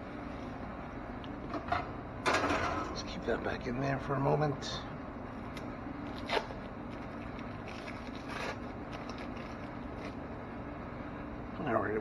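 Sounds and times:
steady low hum: 0:00.0 - 0:12.0
plastic film crinkling: 0:06.0 - 0:10.3.

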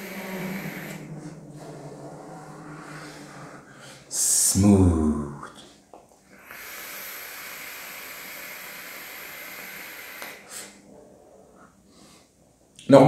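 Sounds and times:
air hissing through vape: 0:00.0 - 0:02.1, 0:06.3 - 0:10.8
soft breath: 0:00.0 - 0:04.4, 0:05.6 - 0:12.6.

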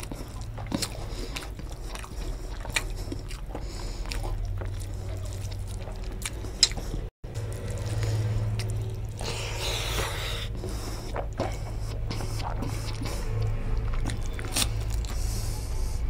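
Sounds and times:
chewing: 0:00.0 - 0:16.0
fingers squishing rice: 0:00.0 - 0:16.0
steady low hum: 0:00.0 - 0:16.0.

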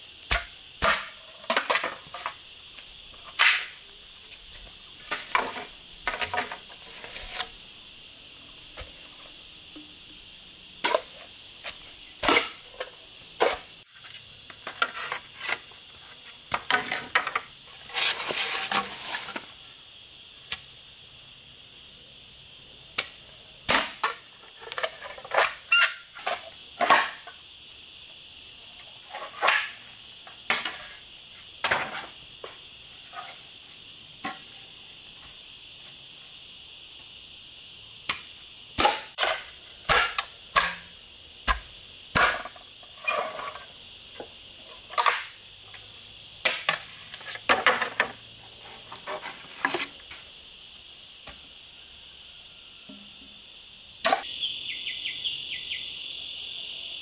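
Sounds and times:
rainforest insects droning: 0:00.0 - 0:57.0
sharp knocks and cracks: 0:00.3 - 0:02.4, 0:23.0 - 0:25.6, 0:38.1 - 0:42.7.

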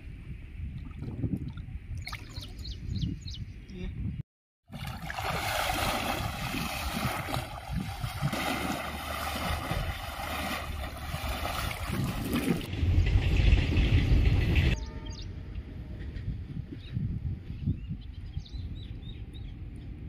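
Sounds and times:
water splashing around legs: 0:04.7 - 0:12.7.

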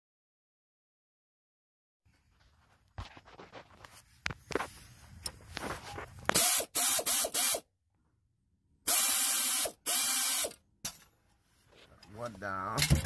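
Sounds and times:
air ratchet hissing and whining: 0:06.3 - 0:07.6, 0:08.8 - 0:10.6.

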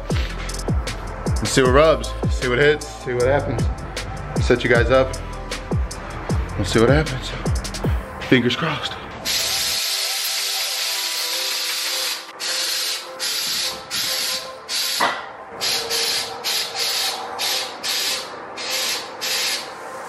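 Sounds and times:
air hissing in short bursts: 0:09.3 - 0:15.0, 0:15.6 - 0:20.0.

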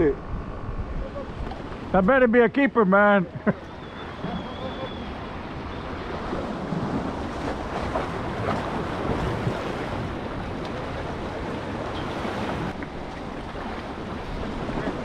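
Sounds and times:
wind buffeting microphone: 0:03.5 - 0:15.0
sea waves washing against rocks: 0:04.1 - 0:15.0.

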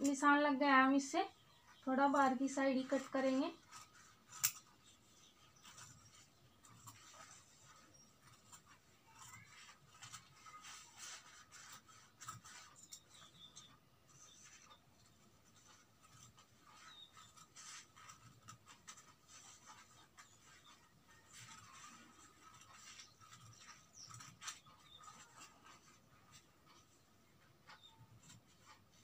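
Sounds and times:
scissors snipping stiff cloth: 0:04.3 - 0:04.7.

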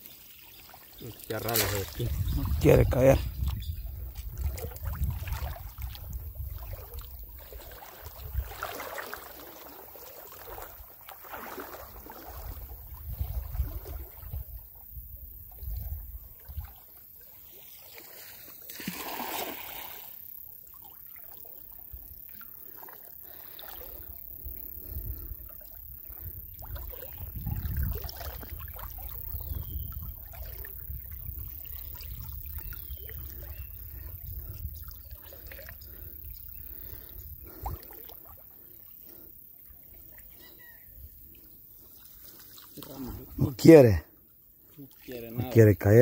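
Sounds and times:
water splashing: 0:00.0 - 0:03.2, 0:04.2 - 0:14.5, 0:16.4 - 0:24.0, 0:25.4 - 0:40.6
floodwater sloshing and trickling: 0:00.0 - 0:45.6
low rumble on microphone: 0:01.8 - 0:07.4, 0:24.7 - 0:37.9.

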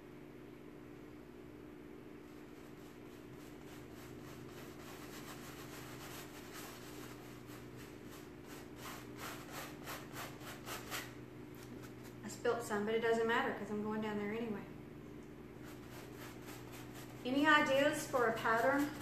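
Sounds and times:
paintbrush scrubbing fabric: 0:02.2 - 0:12.2, 0:15.5 - 0:19.0.

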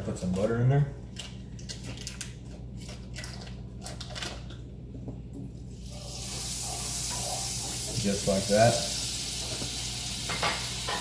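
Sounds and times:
butter sizzling in a skillet: 0:05.9 - 0:11.0.

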